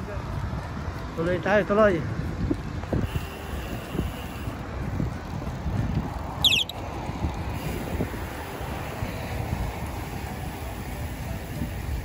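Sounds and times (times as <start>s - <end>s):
bicycle rolling on pavement: 0.0s - 12.0s
highway traffic: 0.0s - 12.0s
wind buffeting microphone: 0.0s - 12.0s
short high squeak: 6.4s - 6.8s.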